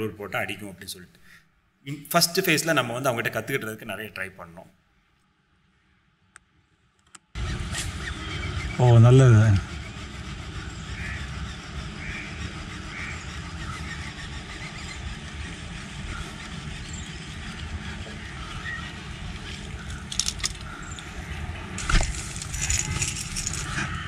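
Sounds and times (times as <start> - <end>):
low rumble: 15.0 - 24.0
sharp clicks and knocks: 19.5 - 21.1.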